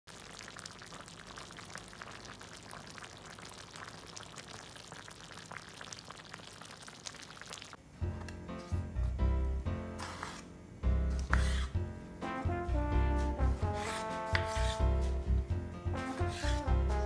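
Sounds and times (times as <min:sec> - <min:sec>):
gravy bubbling and sizzling: 0:00.1 - 0:07.9, 0:14.5 - 0:17.0.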